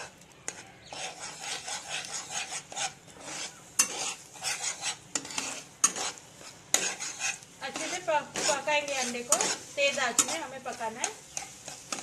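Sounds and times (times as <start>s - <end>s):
eggs sizzling in hot oil: 0.0s - 12.0s
metal spatula scraping pan: 0.0s - 12.0s
spatula clicking on pan: 3.8s - 12.0s.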